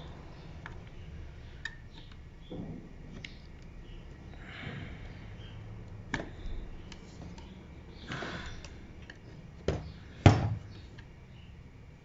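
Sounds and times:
breath noise: 7.9s - 9.0s.

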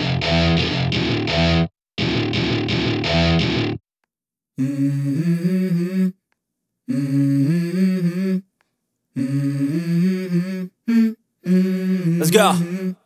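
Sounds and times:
person humming a melody: 4.6s - 6.2s, 6.9s - 8.5s, 9.2s - 13.0s.

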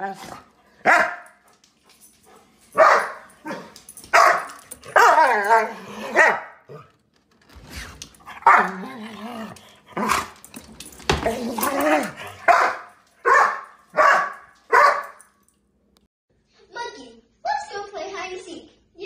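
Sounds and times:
dog barking: 0.8s - 1.4s, 2.7s - 6.8s, 8.4s - 8.8s, 11.7s - 15.3s
dog wavering cries: 2.9s - 6.5s.

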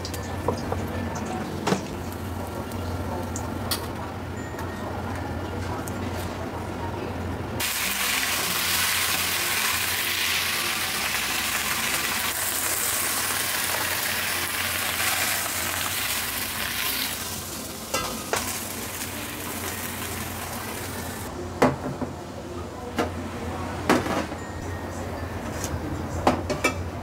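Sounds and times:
vegetables sizzling in a wok: 7.6s - 21.3s.

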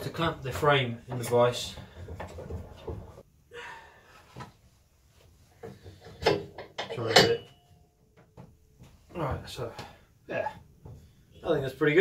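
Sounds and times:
metallic ring: 6.2s - 8.0s.

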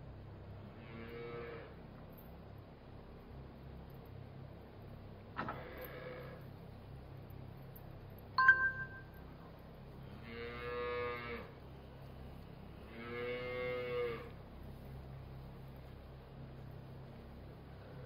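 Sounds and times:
metallic clink: 8.4s - 9.2s
cow mooing: 12.9s - 14.3s.

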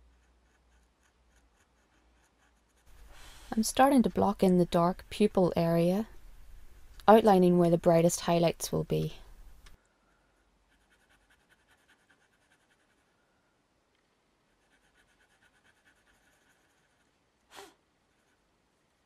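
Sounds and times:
pencil scratching on paper: 0.0s - 3.6s, 10.4s - 13.1s, 14.5s - 17.2s
breath-like puff: 3.1s - 3.5s, 17.5s - 17.8s.

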